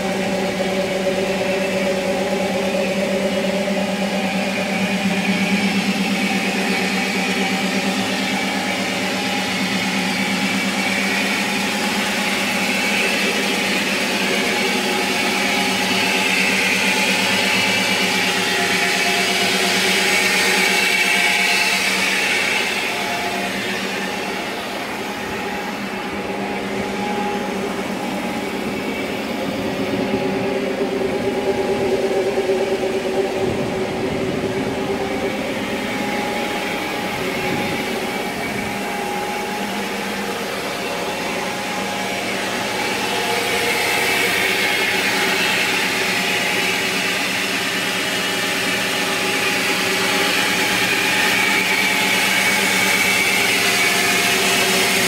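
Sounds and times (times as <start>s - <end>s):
truck engine droning: 0.0s - 55.0s
rushing noise: 10.9s - 49.5s.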